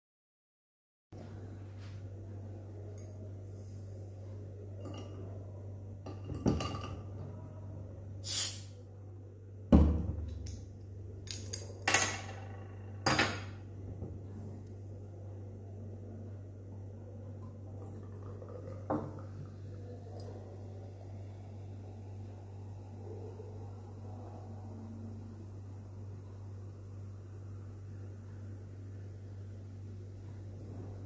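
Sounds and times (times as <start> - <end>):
hiss of escaping gas: 8.2 - 8.7.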